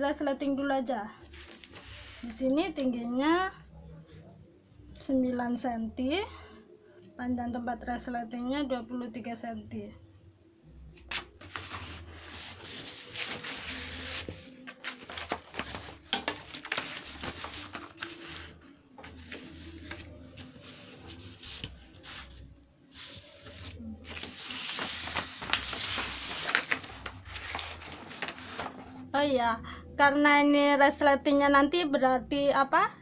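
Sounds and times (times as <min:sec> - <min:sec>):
stiff paper rustling: 0:11.1 - 0:29.1.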